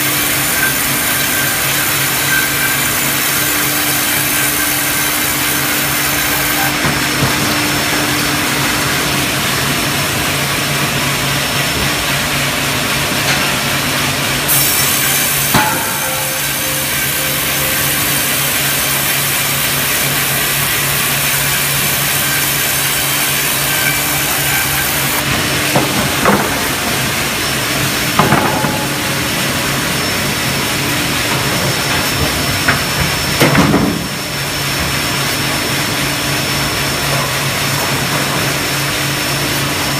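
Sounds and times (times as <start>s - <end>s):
band saw sawing a log: 0.0s - 11.0s, 14.4s - 32.6s
low machinery hum: 0.0s - 39.9s.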